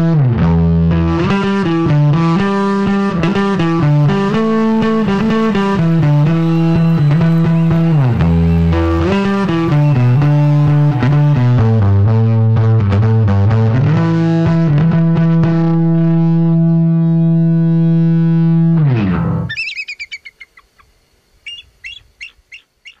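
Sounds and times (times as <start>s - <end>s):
distorted electric bass: 0.0s - 19.5s
bird chirps: 4.4s - 11.1s, 19.5s - 23.0s.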